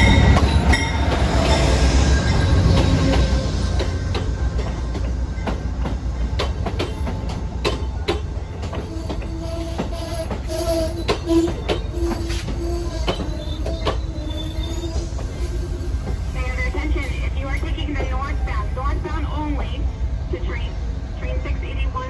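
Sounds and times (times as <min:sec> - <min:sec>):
train wheel squeal: 0:00.0 - 0:04.7, 0:06.4 - 0:17.3
train coaches rolling past: 0:00.0 - 0:22.0
wheels clicking over rail joints: 0:02.6 - 0:16.4.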